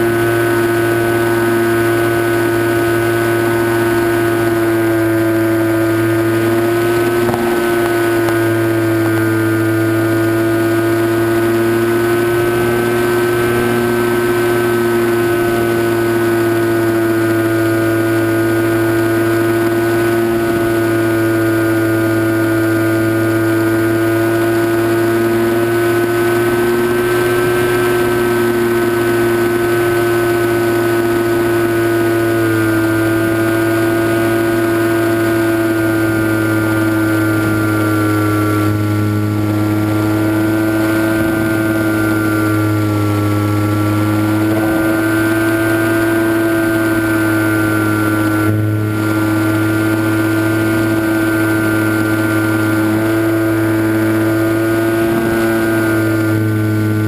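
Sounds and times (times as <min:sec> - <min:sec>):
electric motor and propeller whine: 0:00.0 - 0:57.0.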